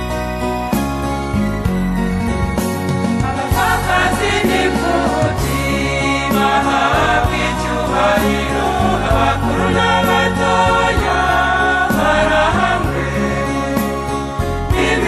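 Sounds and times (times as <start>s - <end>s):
choir singing a hymn: 3.2s - 15.0s.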